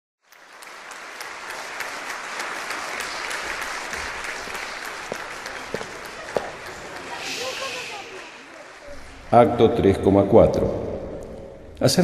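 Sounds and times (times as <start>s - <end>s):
many hands clapping: 0.2s - 9.6s.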